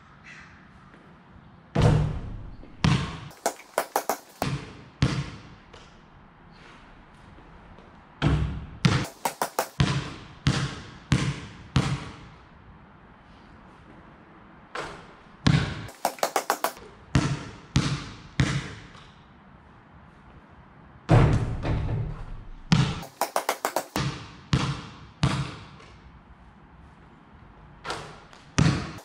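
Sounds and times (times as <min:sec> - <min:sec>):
basketball bouncing on concrete: 0:01.8 - 0:05.9, 0:08.2 - 0:12.3, 0:14.8 - 0:19.0, 0:21.1 - 0:25.9, 0:27.9 - 0:29.0.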